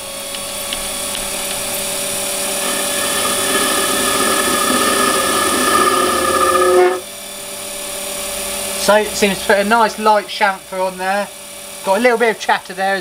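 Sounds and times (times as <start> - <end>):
lathe running: 0.1 - 7.3.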